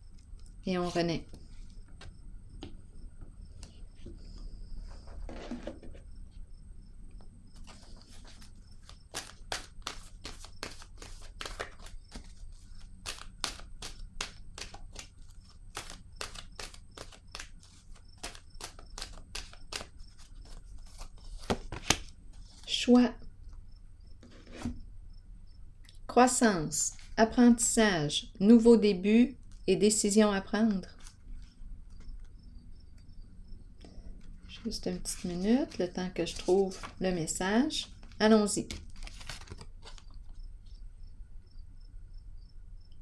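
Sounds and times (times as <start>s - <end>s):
cards shuffled by hand: 7.6s - 22.7s, 31.0s - 32.3s, 34.2s - 40.4s.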